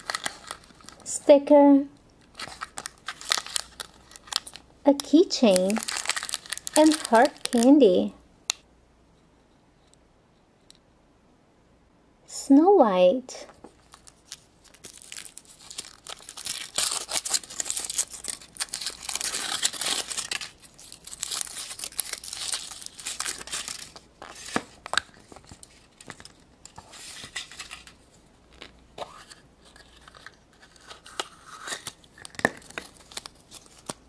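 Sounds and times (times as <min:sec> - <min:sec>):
foil wrapper crinkling: 0:00.0 - 0:01.1, 0:02.2 - 0:04.6, 0:05.4 - 0:07.8, 0:13.7 - 0:28.8, 0:29.6 - 0:34.0.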